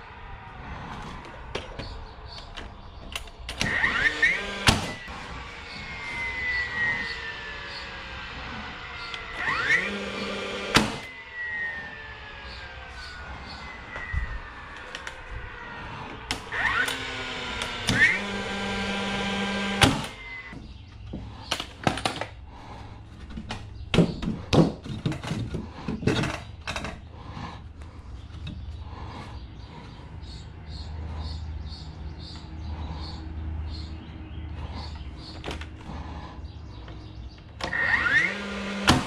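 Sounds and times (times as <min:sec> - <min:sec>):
nailer motor whine: 0:00.0 - 0:22.8, 0:35.3 - 0:39.0
nail driven with sharp crack: 0:03.2 - 0:05.0, 0:10.6 - 0:11.1, 0:19.7 - 0:20.2, 0:37.6 - 0:39.0.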